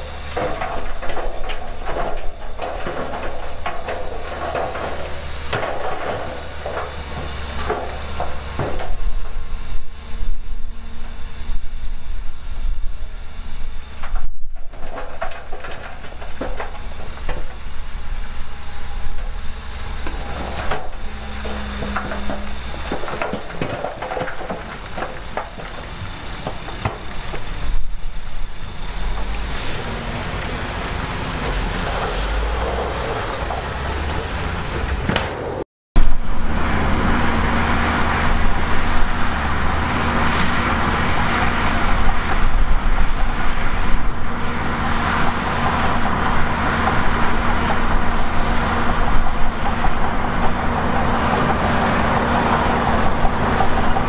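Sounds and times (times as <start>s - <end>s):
heavy earthmoving machinery running: 0.0s - 54.0s
machinery clanks and rattles: 0.0s - 54.0s
brief hiss: 29.5s - 30.0s.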